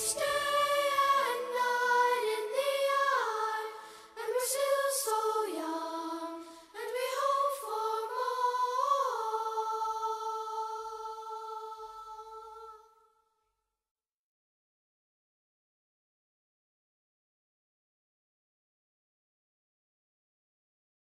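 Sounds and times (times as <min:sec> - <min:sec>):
voices singing in harmony: 0:00.0 - 0:13.0.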